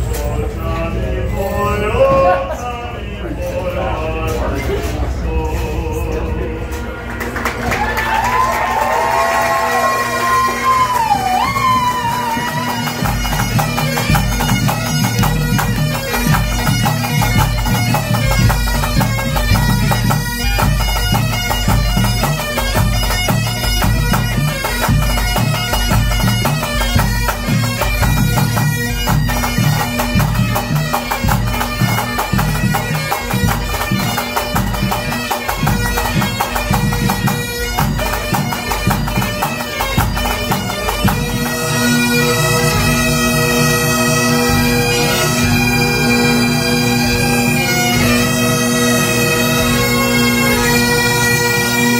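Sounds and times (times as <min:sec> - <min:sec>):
bagpipes playing a melody: 0:09.7 - 0:51.9.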